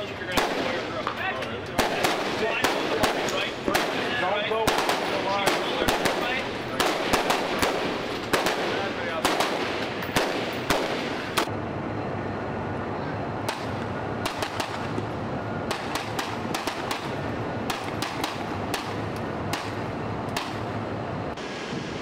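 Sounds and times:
pistol shots: 0.3s - 11.5s, 13.5s - 20.7s
wind on microphone: 20.8s - 22.0s.

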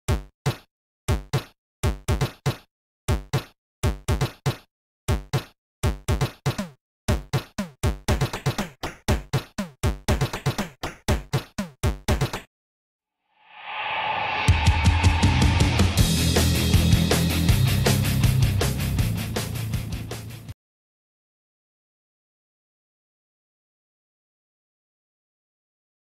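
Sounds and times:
deep falling bass notes: 14.3s - 20.1s
drum machine hits: 14.4s - 18.6s.

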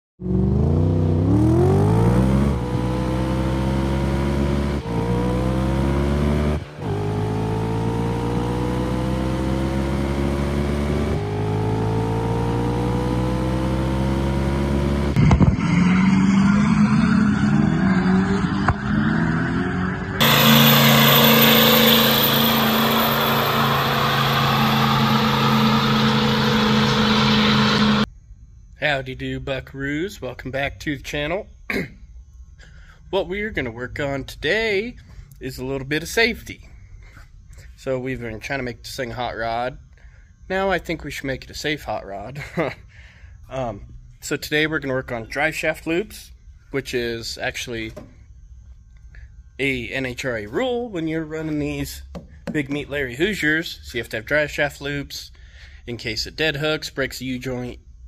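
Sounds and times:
car engine accelerating: 0.2s - 28.1s
rush of noise: 15.2s - 28.1s.

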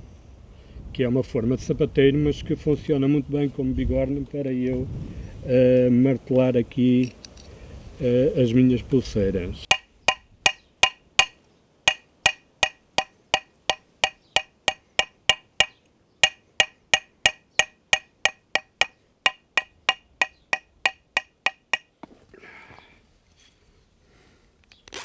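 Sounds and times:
rustle: 0.0s - 16.8s, 21.9s - 25.0s
hammer tapping on metal: 9.7s - 21.9s.

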